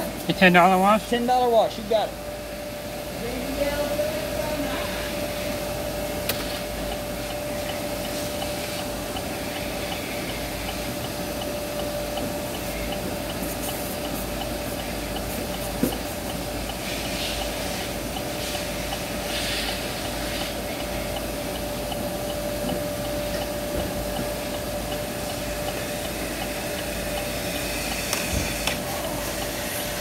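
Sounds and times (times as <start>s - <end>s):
car wash machinery hum and hiss: 0.0s - 30.0s
faint regular ticking: 6.0s - 29.6s.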